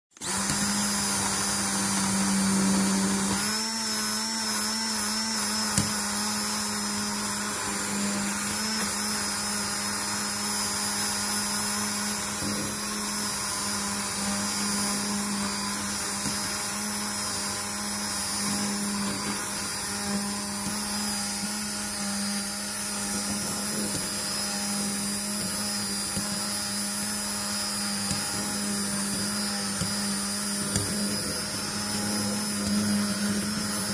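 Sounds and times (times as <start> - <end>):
immersion blender motor whir: 0.1 - 33.9.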